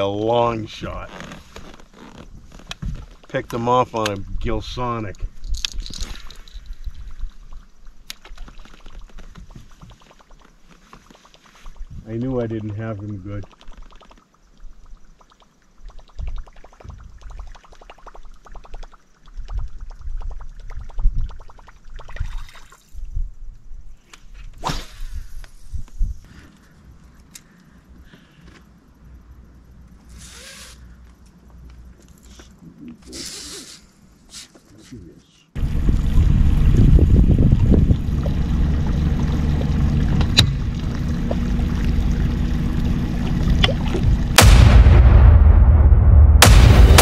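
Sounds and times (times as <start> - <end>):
engine idling: 35.6 - 44.6.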